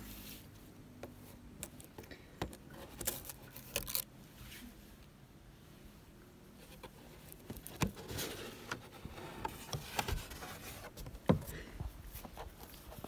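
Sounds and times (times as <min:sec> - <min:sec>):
cardboard rubbing and scraping: 0:06.6 - 0:11.4.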